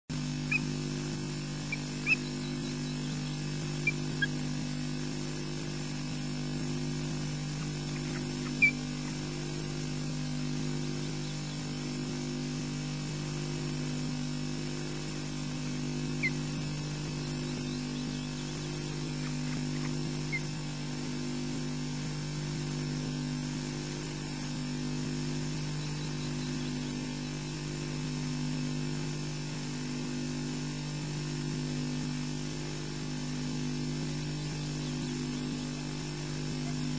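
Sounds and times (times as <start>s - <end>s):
steady mains hum: 0.1s - 36.9s
thin high microphone whine: 0.1s - 36.9s
osprey chirps: 0.4s - 0.8s, 1.6s - 5.1s, 7.5s - 9.5s, 16.1s - 20.6s.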